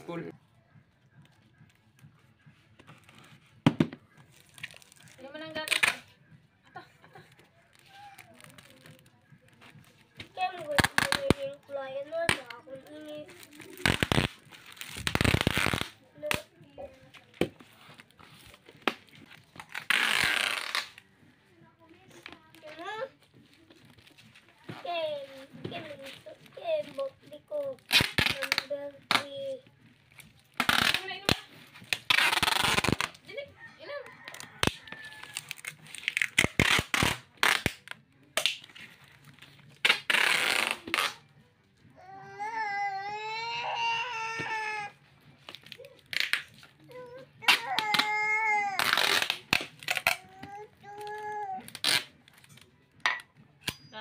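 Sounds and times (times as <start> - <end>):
tape taps and crackles: 1.2 - 6.1, 7.2 - 21.0, 34.3 - 41.3, 45.4 - 53.8
packing tape ripping off roll: 2.8 - 6.1, 7.3 - 9.2, 10.4 - 11.6, 12.2 - 16.5, 18.3 - 21.0, 25.3 - 33.3, 34.3 - 41.3, 42.3 - 52.7
hands tapping tape down: 47.4 - 53.8.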